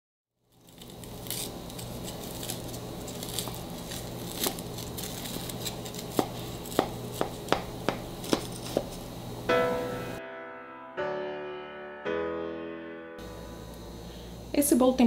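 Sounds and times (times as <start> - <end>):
cake server crunching crumb topping: 0.5 - 9.1.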